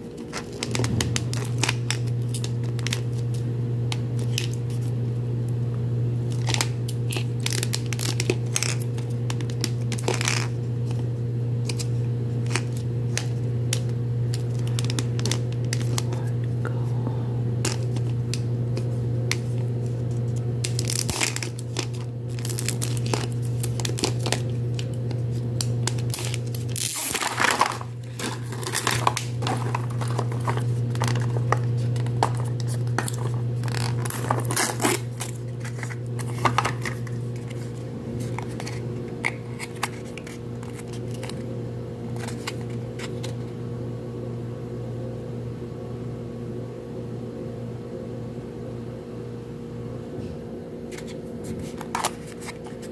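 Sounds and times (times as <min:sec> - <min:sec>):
wrapper crinkling: 0:00.0 - 0:04.9, 0:06.2 - 0:11.0, 0:11.6 - 0:16.3, 0:17.6 - 0:41.4, 0:42.1 - 0:43.4
steady low hum: 0:00.0 - 0:52.9.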